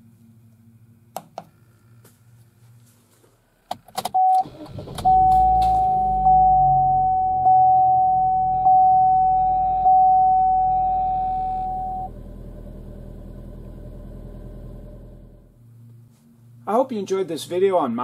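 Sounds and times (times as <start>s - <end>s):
dashboard warning chime dinging: 4.2s - 12.1s
car engine idling: 11.2s - 16.0s.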